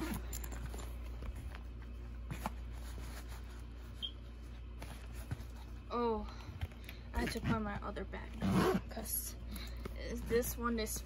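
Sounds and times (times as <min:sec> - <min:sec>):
backpack rustling: 0:00.0 - 0:04.1
low steady hum: 0:00.0 - 0:11.0.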